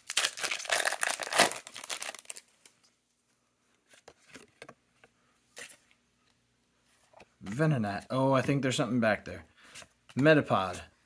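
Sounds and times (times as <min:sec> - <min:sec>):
foil wrapper crinkling and tearing: 0:00.0 - 0:02.5
cards rustling: 0:00.0 - 0:02.9.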